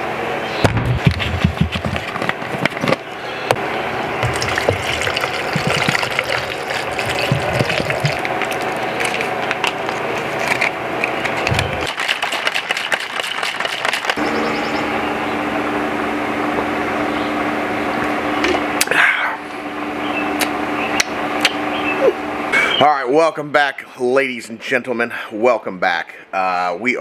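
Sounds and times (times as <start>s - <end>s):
shaker cup being shaken: 0.9s - 2.9s, 4.2s - 14.2s
water pouring into plastic cup: 4.2s - 9.6s.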